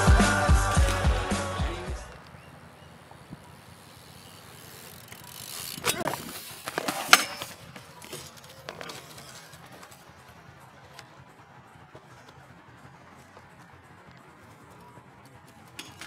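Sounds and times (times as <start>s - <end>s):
bike tyres rolling on concrete: 0.0s - 16.0s
bike crashing on concrete: 0.6s - 1.6s, 4.0s - 11.1s, 15.6s - 16.0s.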